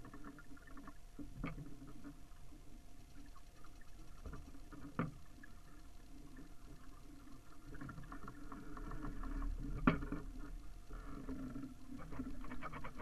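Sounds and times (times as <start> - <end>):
patter of small ticks: 0.0 - 13.0
water lapping against a hull: 0.0 - 13.0.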